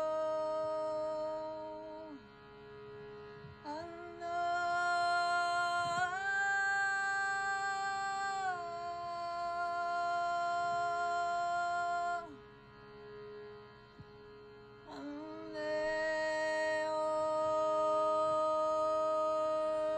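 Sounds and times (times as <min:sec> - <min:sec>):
shruti box drone: 0:00.0 - 0:19.9
woman singing long wordless note: 0:14.9 - 0:19.9.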